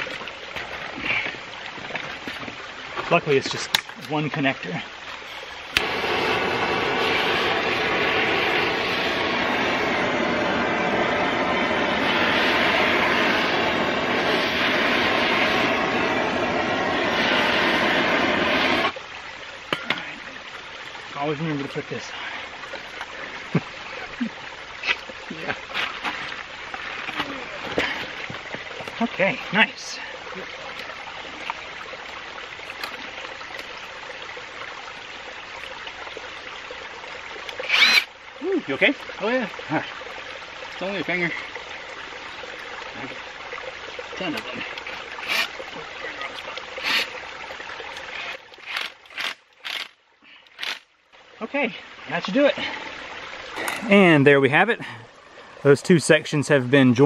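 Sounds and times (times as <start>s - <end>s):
creek water flowing: 0.0s - 57.0s
propane torch hissing: 5.7s - 19.0s.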